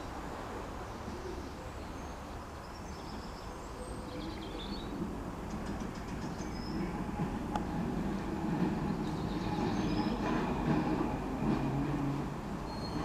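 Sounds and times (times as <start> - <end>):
distant tram rumble: 0.0 - 13.0.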